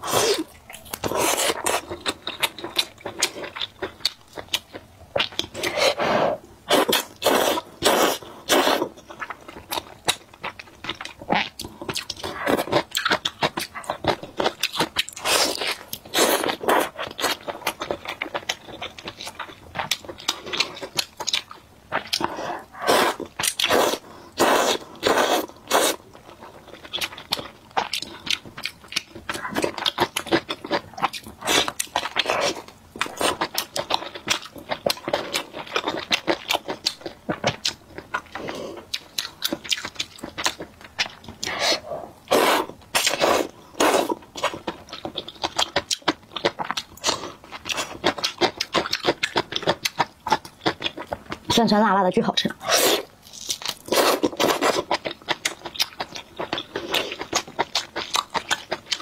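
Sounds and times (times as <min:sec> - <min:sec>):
person slurping noodles: 0:05.6 - 0:08.9, 0:22.2 - 0:26.0, 0:41.4 - 0:44.2, 0:52.6 - 0:53.1
wet chewing: 0:06.7 - 0:51.7, 0:52.5 - 0:59.0.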